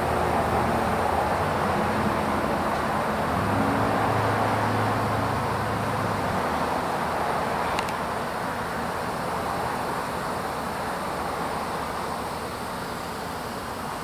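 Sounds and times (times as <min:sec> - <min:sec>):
faint click: 0:07.8 - 0:08.0.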